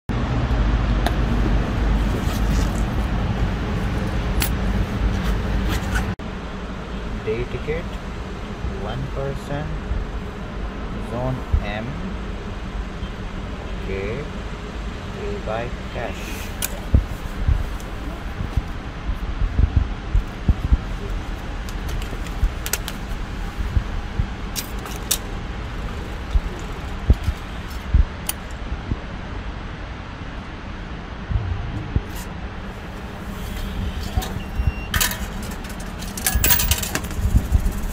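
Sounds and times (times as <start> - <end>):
street traffic rumble: 0.1 - 37.9
wind thumps on microphone: 16.7 - 24.5, 25.9 - 29.3, 31.0 - 34.8.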